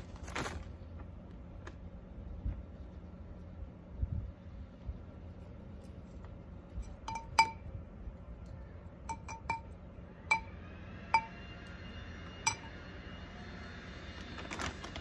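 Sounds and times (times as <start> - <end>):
metal spoon clinking on ceramic pot: 6.8 - 7.7, 8.4 - 10.6, 12.5 - 12.7.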